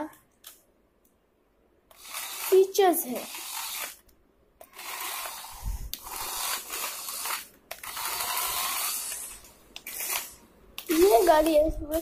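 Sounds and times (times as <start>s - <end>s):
toy car motor whirring: 1.9s - 4.0s, 4.6s - 12.0s.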